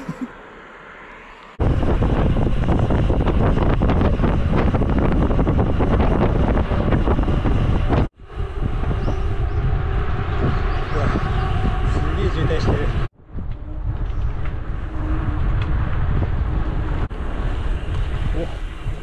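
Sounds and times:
wind buffeting microphone: 1.6s - 19.0s.

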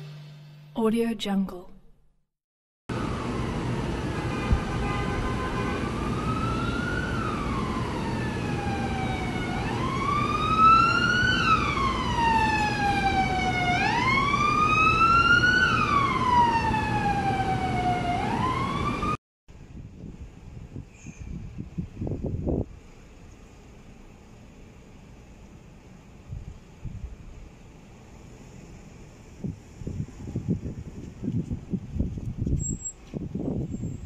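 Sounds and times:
emergency siren wailing: 2.9s - 19.2s.

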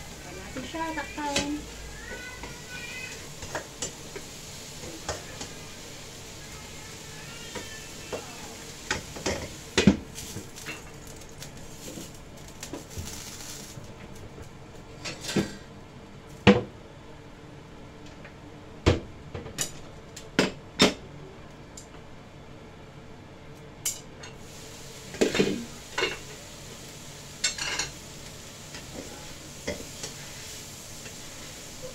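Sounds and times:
faint steady hiss: 0.0s - 14.4s, 24.2s - 31.9s
cookware and utensils clinking: 8.9s - 11.3s, 25.1s - 26.3s, 27.4s - 28.0s.

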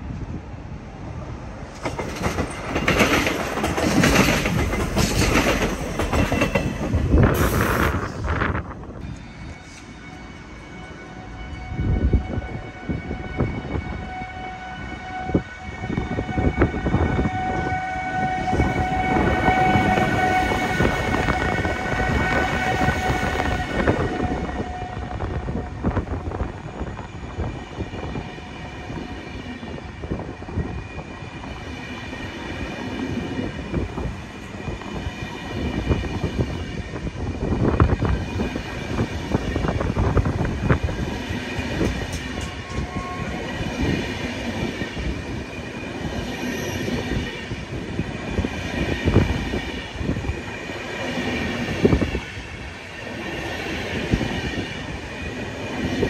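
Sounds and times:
train wheels knocking on track: 1.7s - 8.0s, 37.9s - 45.5s.

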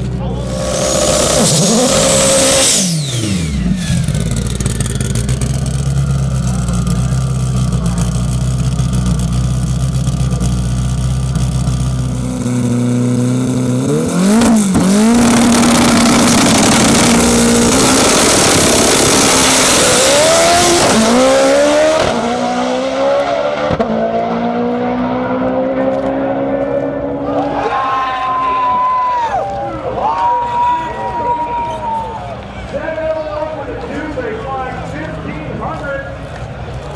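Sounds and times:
car engine revving and accelerating: 0.4s - 27.6s.

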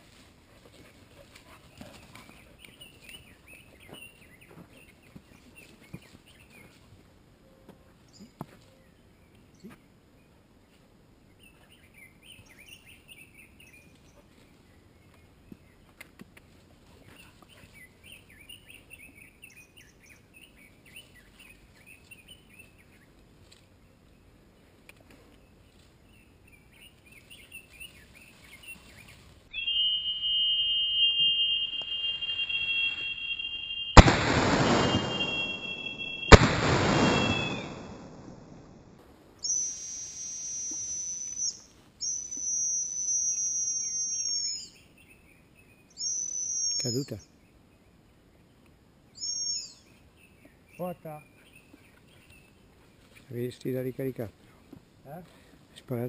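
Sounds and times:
shotgun shots: 34.0s - 38.8s.

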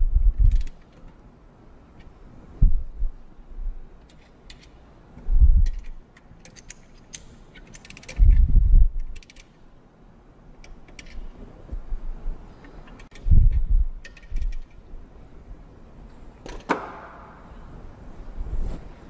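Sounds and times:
ratchet wrench clicks: 9.0s - 9.5s.

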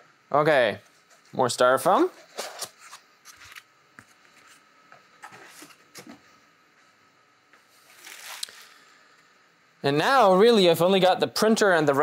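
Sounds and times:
plastic wrap and foam rustling: 7.7s - 8.8s.

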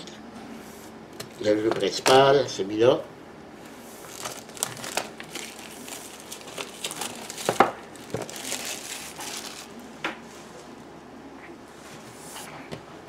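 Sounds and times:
packaging crinkling: 4.0s - 9.9s.

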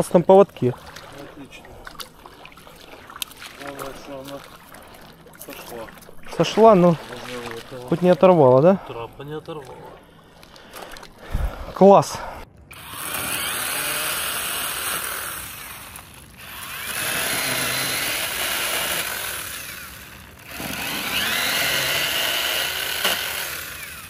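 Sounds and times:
fishing reel whirring: 12.7s - 24.0s.

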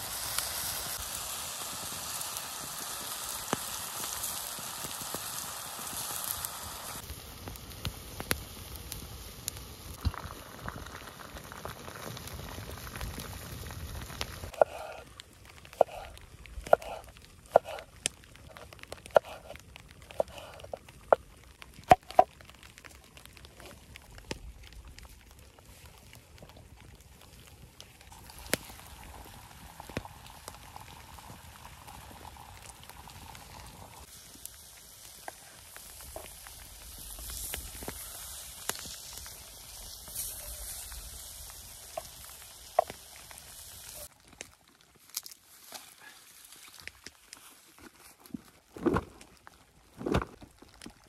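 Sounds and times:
food sizzling in a frying pan: 0.0s - 14.6s, 28.1s - 44.2s
campfire pops and crackles: 0.0s - 47.5s, 48.4s - 51.0s
outdoor ambience: 0.0s - 51.0s.

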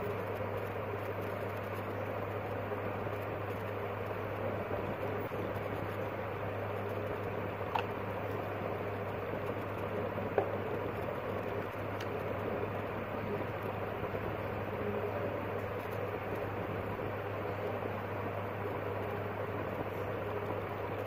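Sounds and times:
faint clicks: 6.8s - 14.9s.

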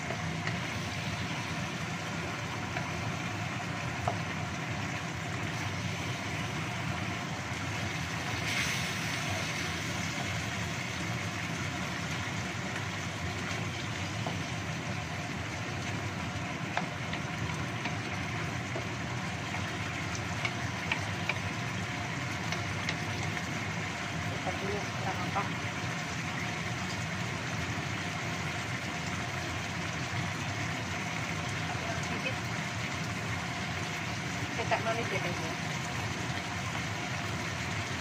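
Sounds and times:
food sizzling in a wok: 0.0s - 38.0s.

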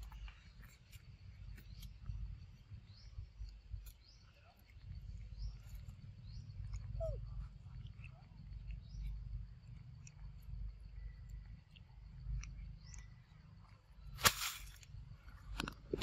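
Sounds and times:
wet chewing clicks: 0.0s - 16.0s
monkey high chirps: 6.7s - 8.2s.

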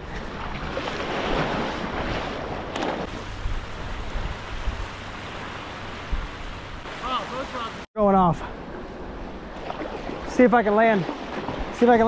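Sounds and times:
wind rumbling on microphone: 0.0s - 7.0s
small waves washing onto beach: 0.0s - 7.9s, 8.6s - 12.0s.

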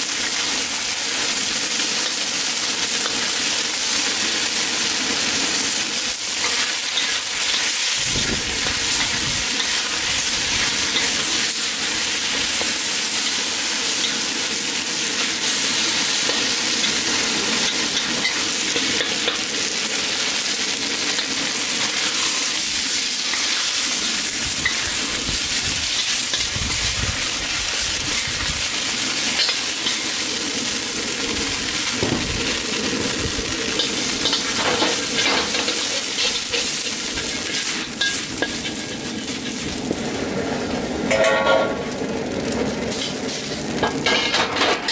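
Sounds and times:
chicken sizzling in a wok: 0.0s - 44.9s
metal ladle scraping a wok: 6.4s - 14.3s, 21.9s - 30.2s, 33.7s - 39.8s, 41.1s - 41.8s, 42.9s - 44.9s.

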